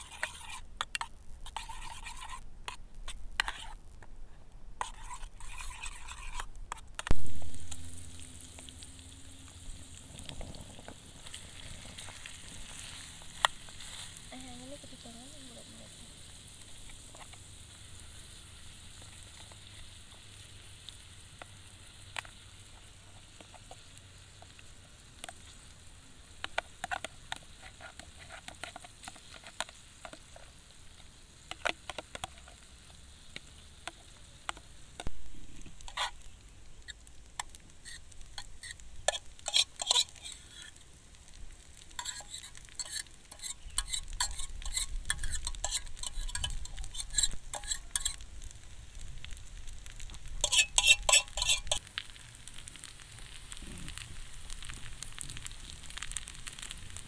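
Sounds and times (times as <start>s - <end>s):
utensil scraping pan: 0.0s - 3.8s, 4.8s - 7.1s, 26.4s - 30.6s, 31.5s - 40.8s, 41.8s - 48.2s, 50.3s - 51.9s
rice sizzling in a pan: 0.0s - 57.0s.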